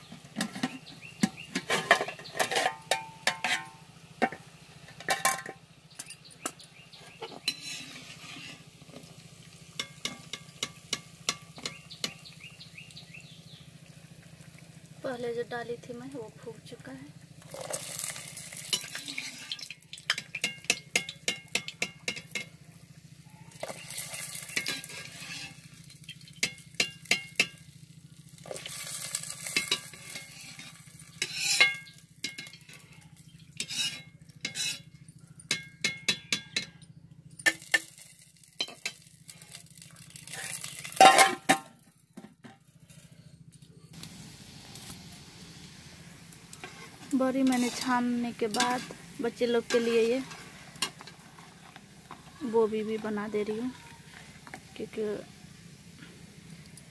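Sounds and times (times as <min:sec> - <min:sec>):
food sizzling in hot oil: 0:00.0 - 0:34.8, 0:37.4 - 0:41.6, 0:43.9 - 0:56.9
metal clatter: 0:00.3 - 0:08.6, 0:40.2 - 0:42.6
metal spoon clinking against wok: 0:00.4 - 0:04.4, 0:09.8 - 0:12.2, 0:18.7 - 0:22.5, 0:23.6 - 0:27.6, 0:29.4 - 0:38.0, 0:38.6 - 0:39.1, 0:47.4 - 0:51.2.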